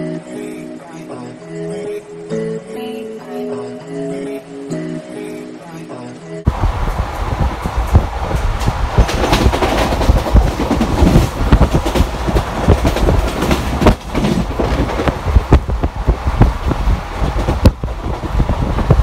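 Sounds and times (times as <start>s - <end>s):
train rumble: 6.5s - 19.0s
wheels clicking over rail joints: 6.9s - 19.0s.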